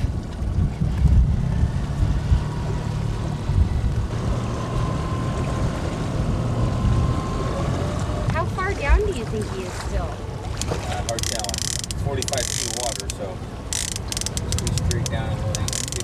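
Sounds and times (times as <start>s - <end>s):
wind buffeting the microphone: 0.0s - 4.5s
water noise: 0.0s - 16.0s.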